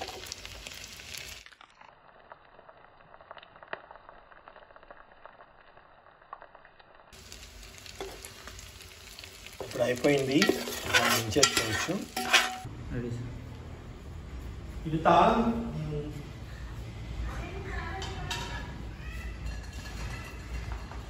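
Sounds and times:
fish sizzling in hot oil: 0:00.0 - 0:12.7
metal scraping against pan: 0:09.5 - 0:12.7, 0:18.0 - 0:21.0
spoon stirring: 0:09.5 - 0:12.7.

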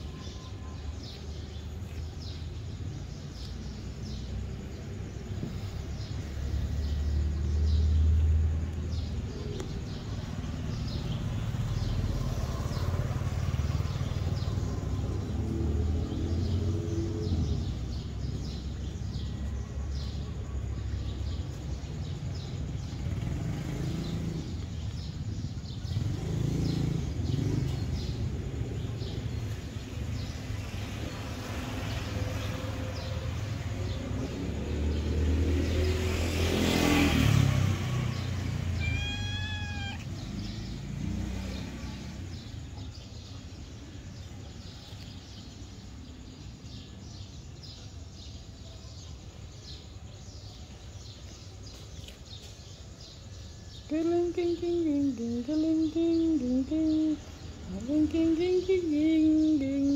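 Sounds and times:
low traffic rumble: 0:00.0 - 0:59.9
vehicle passing: 0:00.8 - 0:48.3
cat meowing: 0:38.6 - 0:40.2.

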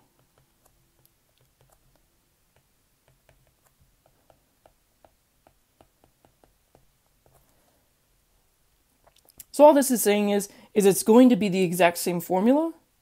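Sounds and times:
stylus tapping on glass screen: 0:00.2 - 0:07.4.

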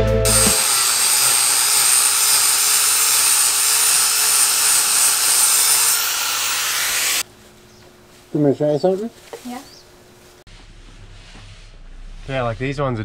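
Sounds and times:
angle grinder whining: 0:00.0 - 0:07.3.

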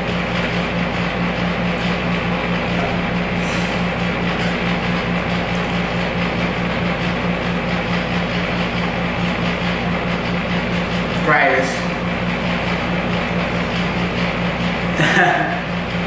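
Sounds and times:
low pulsing hum: 0:00.0 - 0:16.0.

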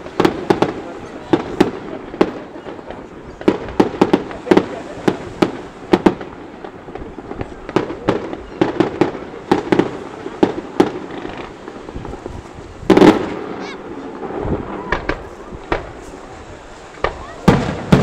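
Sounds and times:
firework shells bursting: 0:00.0 - 0:18.0.

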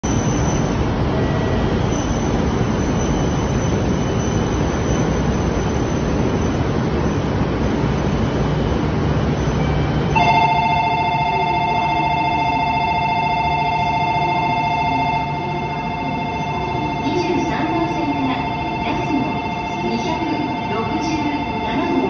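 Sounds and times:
train hum: 0:00.0 - 0:22.0
electronic departure bell: 0:09.4 - 0:22.0.

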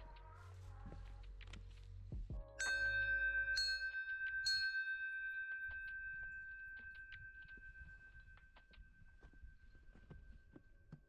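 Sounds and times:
brass bell ringing: 0:02.6 - 0:07.2.

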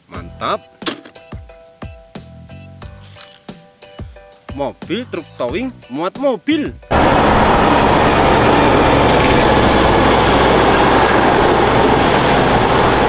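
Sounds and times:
diesel engine drone: 0:06.9 - 0:13.0
tyre and road noise: 0:06.9 - 0:13.0.

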